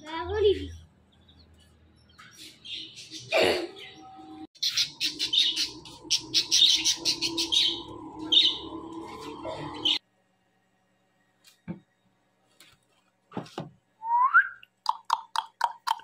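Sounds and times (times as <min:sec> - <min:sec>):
small parrots chirping: 0:04.6 - 0:08.8.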